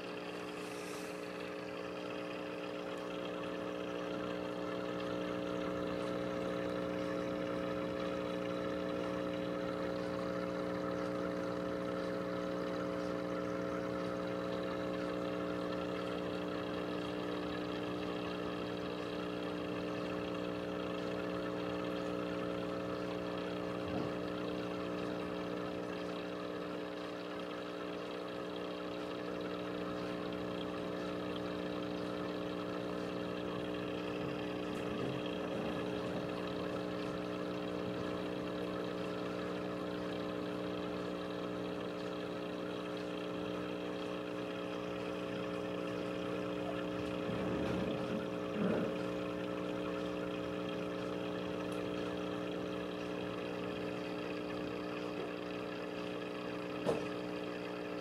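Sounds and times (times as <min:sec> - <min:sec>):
air bubbling in water: 0:00.0 - 0:58.0
air pump humming: 0:00.0 - 0:58.0.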